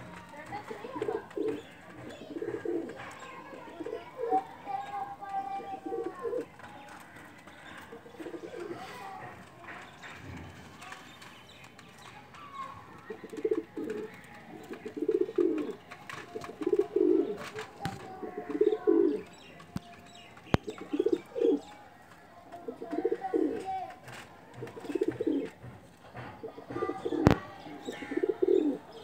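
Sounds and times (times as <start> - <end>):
pigeon cooing: 0.8 - 4.7, 5.6 - 6.5, 7.9 - 9.3, 13.0 - 19.3, 20.5 - 21.7, 22.6 - 23.6, 24.6 - 25.6, 26.5 - 29.0.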